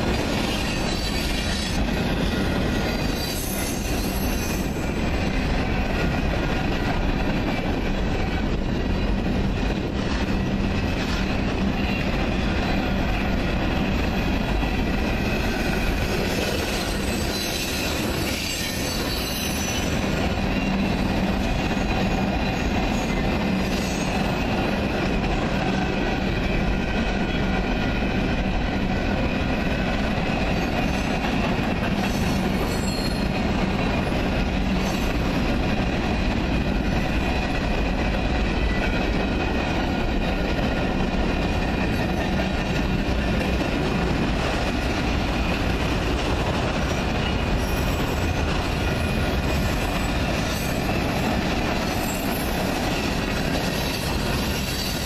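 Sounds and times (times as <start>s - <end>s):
freight train rumbling past: 0.0s - 55.0s
high wheel squeal: 0.4s - 5.0s, 15.2s - 20.0s, 32.0s - 33.4s.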